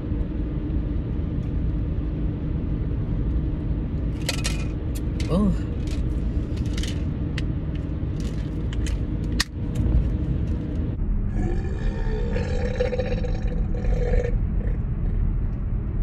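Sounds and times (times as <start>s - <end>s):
car cabin rumble: 0.0s - 16.0s
woman burping: 11.4s - 14.4s.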